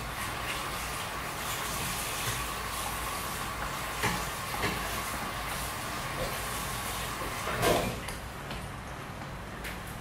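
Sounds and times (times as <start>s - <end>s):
sauce simmering in frying pan: 0.0s - 7.5s.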